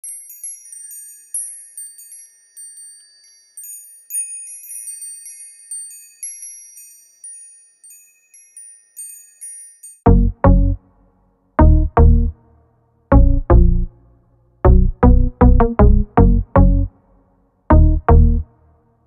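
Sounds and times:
sparkling bell-like chimes: 0.0 - 10.1
bass-heavy hits: 10.1 - 10.8, 11.6 - 12.3, 13.1 - 13.9, 14.7 - 16.9, 17.7 - 18.4
electronic music: 10.1 - 10.8, 11.6 - 12.3, 13.1 - 13.9, 14.7 - 16.9, 17.7 - 18.4.

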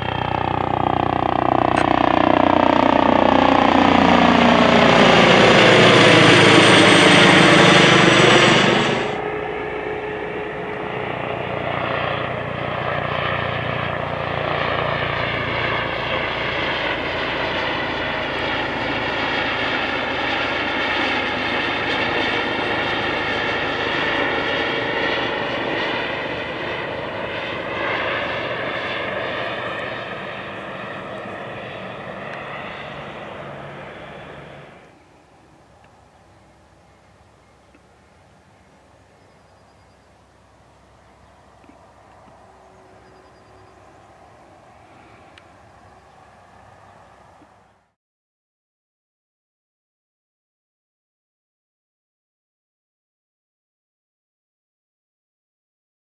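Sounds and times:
helicopter flying past: 0.0 - 48.0.

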